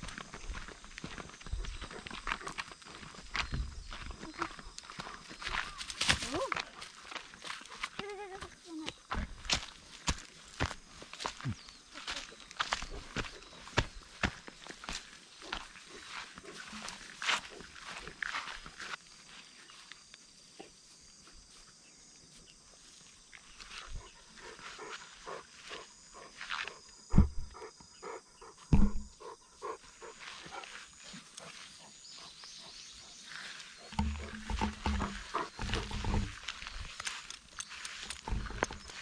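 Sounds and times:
dog panting: 24.0s - 26.4s, 27.4s - 33.2s, 33.8s - 36.3s
loud thumps: 27.1s - 27.5s, 28.7s - 29.1s.

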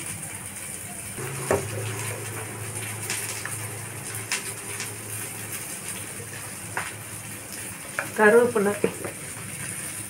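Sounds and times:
onions sizzling in a pan: 0.0s - 10.0s
low hum: 1.2s - 8.0s.

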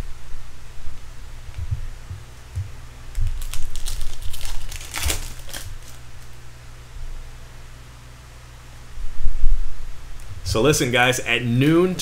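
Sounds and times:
foil wrapper crinkling and tearing: 3.1s - 6.4s.

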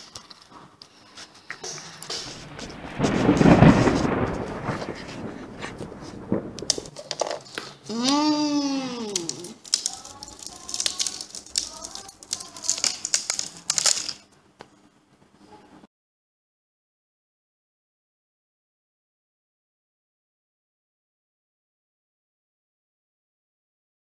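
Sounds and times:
cookie crunching: 9.0s - 14.3s.

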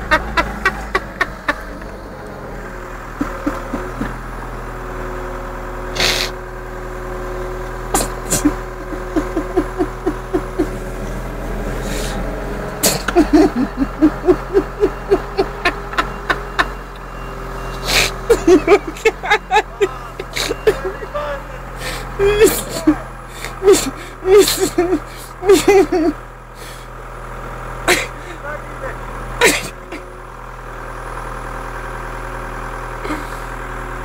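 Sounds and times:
forklift motor hum and whine: 0.0s - 34.0s
person's voice in rhythmic bursts: 20.6s - 21.7s, 28.3s - 29.0s.

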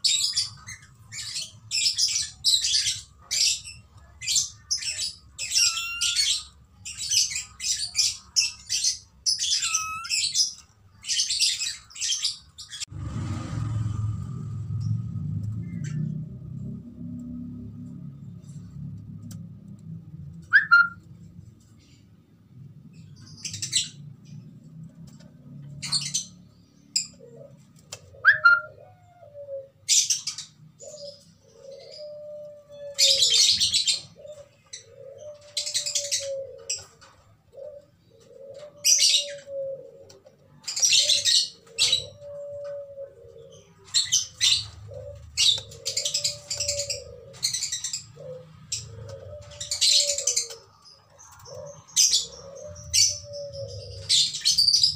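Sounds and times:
bird cooing: 0.0s - 12.3s, 20.5s - 21.0s, 26.9s - 54.9s
birds chirping: 0.0s - 54.9s.

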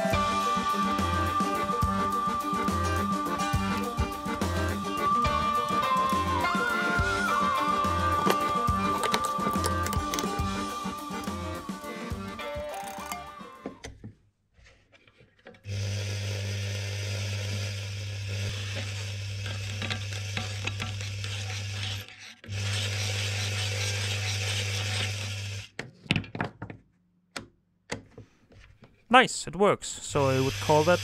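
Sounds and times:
sewing machine motor humming: 0.2s - 13.7s, 30.2s - 31.0s.

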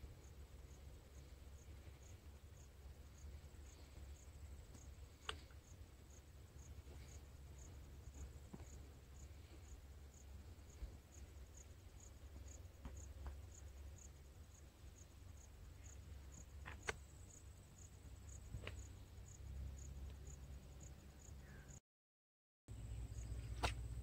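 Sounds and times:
high insect chirp: 0.0s - 21.8s, 22.7s - 24.0s
faint clicks: 4.7s - 5.6s.

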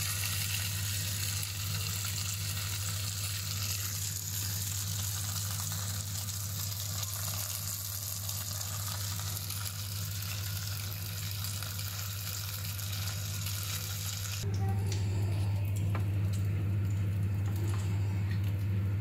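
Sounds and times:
meat sizzling in grill pan: 0.0s - 14.4s
constant low hum: 0.0s - 19.0s.

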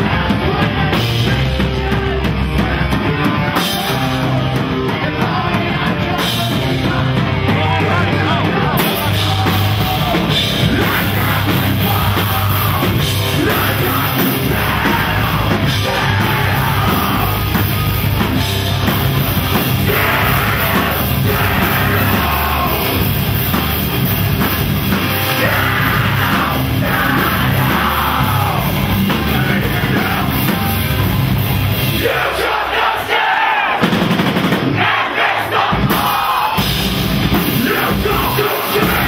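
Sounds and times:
crowd: 0.0s - 39.0s
distorted guitars: 0.0s - 39.0s
live heavy rock band: 0.0s - 39.0s
pounding drum kit: 0.0s - 39.0s
person singing: 19.5s - 23.2s, 37.5s - 39.0s.

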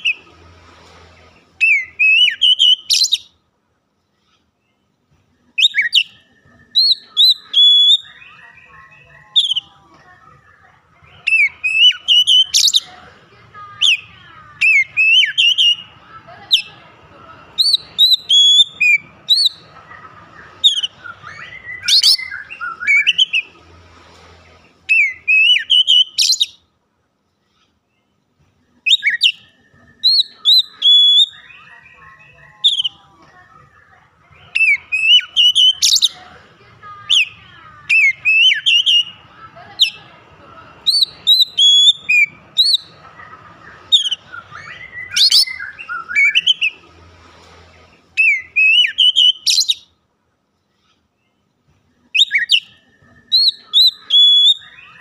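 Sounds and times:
songbird whistling and chattering: 1.6s - 3.4s, 5.5s - 9.8s, 11.0s - 13.0s, 13.8s - 23.6s, 24.9s - 26.7s, 28.8s - 33.0s, 34.3s - 36.3s, 37.0s - 40.2s, 40.8s - 46.9s, 48.2s - 50.0s, 52.0s - 55.0s.

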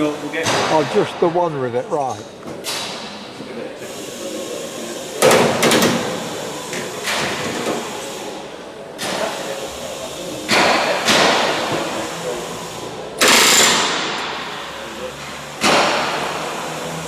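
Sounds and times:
pneumatic rivet gun hammering: 5.2s - 8.2s, 10.4s - 12.0s, 13.2s - 14.7s, 15.5s - 17.0s.

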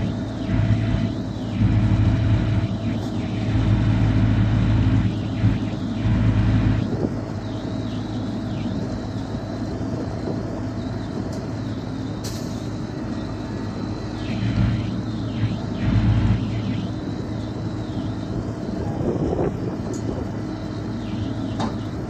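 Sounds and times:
tow truck engine running: 0.0s - 22.0s.

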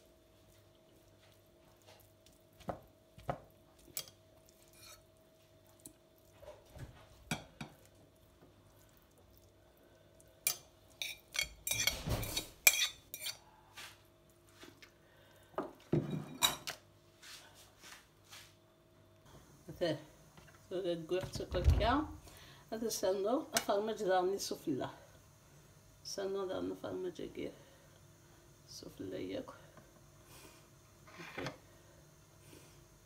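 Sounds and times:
metal fork scraping and tapping: 3.9s - 5.0s, 10.5s - 12.0s, 12.6s - 13.4s.

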